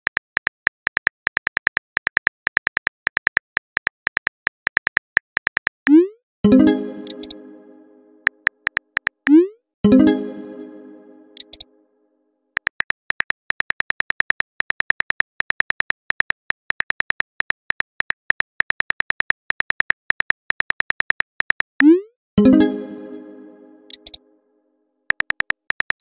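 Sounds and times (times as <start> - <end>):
phone keyboard typing clicks: 11.4 - 11.6, 23.9 - 24.2.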